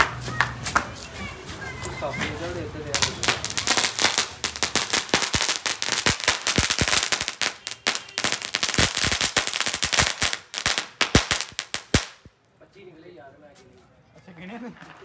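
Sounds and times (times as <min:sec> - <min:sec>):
firework crackling and popping: 0:02.1 - 0:12.3.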